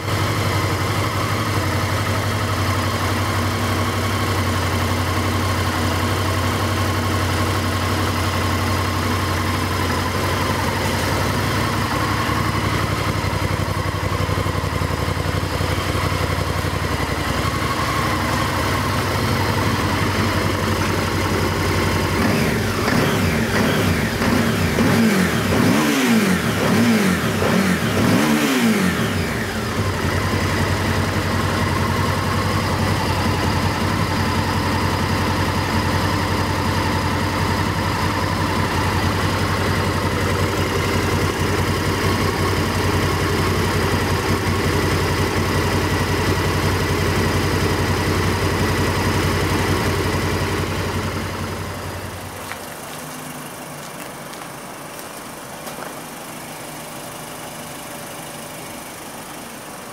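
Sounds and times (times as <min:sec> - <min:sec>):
motorcycle engine revving and idling: 0:00.0 - 0:59.9
car engine idling quietly: 0:00.2 - 0:24.2, 0:29.4 - 0:59.9.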